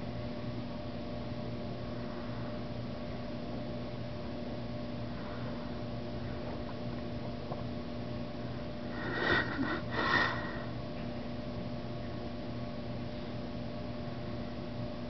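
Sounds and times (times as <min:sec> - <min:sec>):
steady low hum: 0:00.0 - 0:15.0
breathy sniffs: 0:09.0 - 0:10.8.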